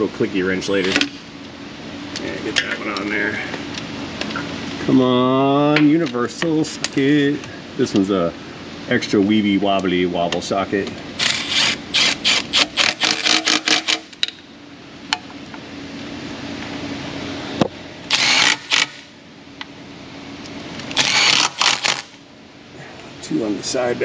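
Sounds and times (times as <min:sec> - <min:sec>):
hand ratchet clicking: 0:11.2 - 0:14.3, 0:18.1 - 0:19.0, 0:21.0 - 0:22.1.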